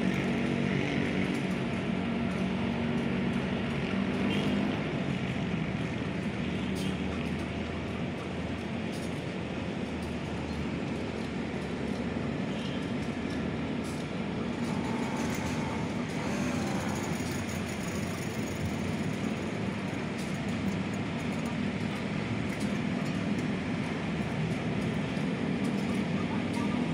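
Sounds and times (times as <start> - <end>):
traffic rumble: 0.0 - 26.9
electric train approaching: 9.7 - 26.9.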